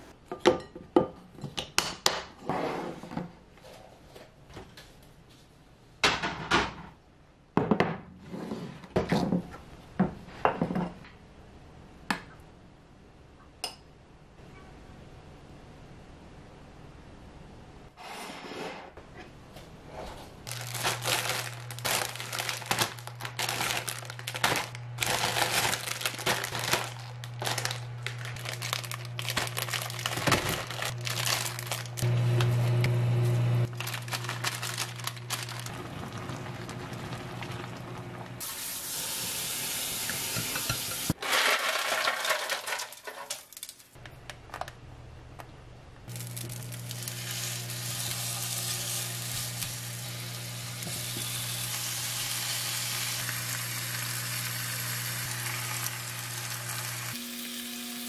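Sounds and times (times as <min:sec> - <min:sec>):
plastic packaging crinkling: 0:20.4 - 0:32.6, 0:33.6 - 0:36.1, 0:46.1 - 0:49.8
noodles shaken into pot: 0:33.7 - 0:35.7, 0:41.2 - 0:43.9
pork sizzling in frying pan: 0:38.4 - 0:41.2, 0:46.1 - 0:58.0.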